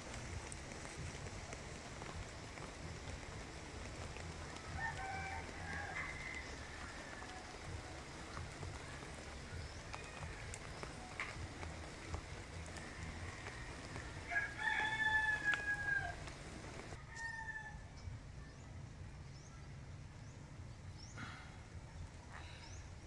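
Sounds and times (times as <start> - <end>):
small birds chirping: 0.0 - 17.0, 17.9 - 23.0
rooster crowing: 4.4 - 8.2, 11.9 - 17.9.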